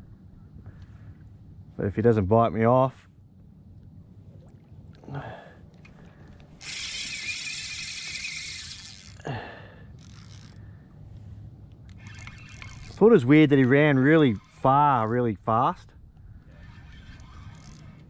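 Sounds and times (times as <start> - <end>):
fishing reel drag buzzing: 6.5 - 10.8, 11.9 - 15.4, 16.0 - 18.0.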